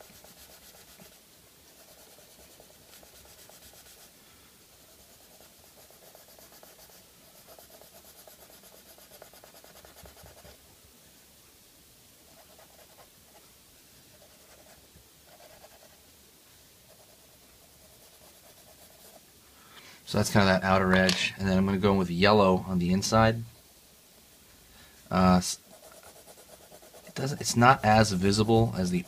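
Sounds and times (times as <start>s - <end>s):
pencil scratching on paper: 0.0s - 4.1s, 4.8s - 10.6s, 12.3s - 13.4s, 14.1s - 16.0s, 16.9s - 19.2s, 25.6s - 29.0s.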